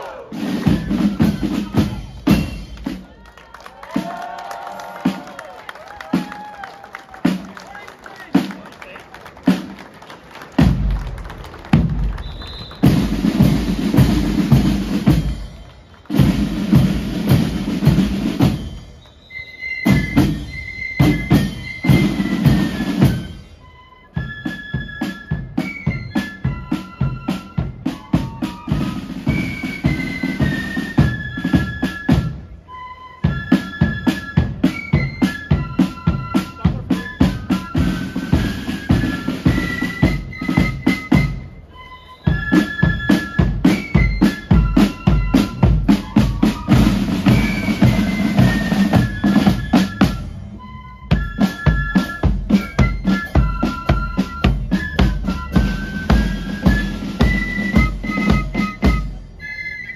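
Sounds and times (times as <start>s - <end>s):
flute melody: 0.0s - 8.4s, 12.0s - 59.9s
rapid side drums: 10.6s - 19.0s, 42.3s - 50.5s, 51.1s - 59.2s.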